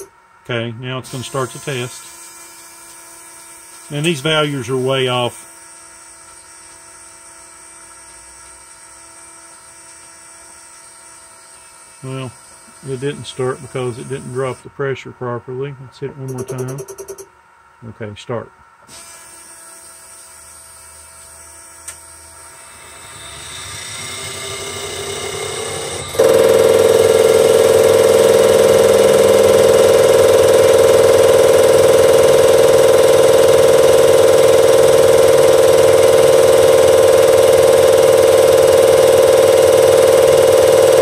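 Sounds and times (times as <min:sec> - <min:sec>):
loud steady buzz and hiss: 0:00.0 - 0:16.7, 0:17.4 - 0:41.0
low machine hum: 0:10.8 - 0:18.9, 0:21.0 - 0:41.0.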